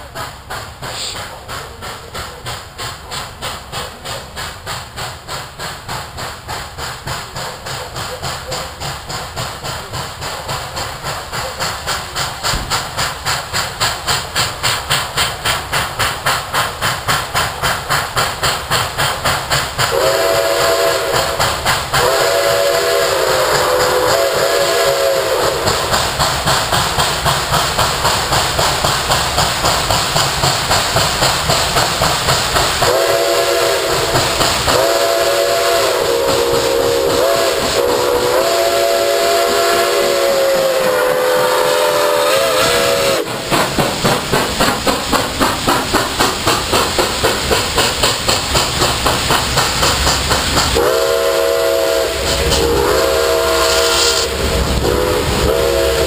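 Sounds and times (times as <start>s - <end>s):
steam locomotive exhaust beats: 0.0s - 56.0s
steam whistle blasts: 19.9s - 25.9s, 32.8s - 43.5s, 50.8s - 56.0s.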